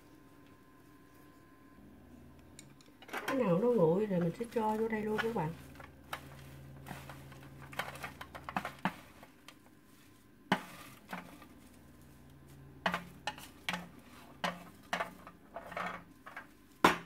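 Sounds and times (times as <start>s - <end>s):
low steady hum: 0.0s - 17.0s
chopsticks tapping metal pan: 12.8s - 15.3s.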